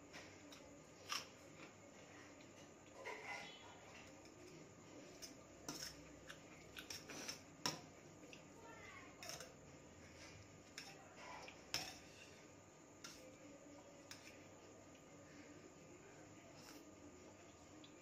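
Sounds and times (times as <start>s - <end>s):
fork clinking on metal plate: 9.2s - 9.5s.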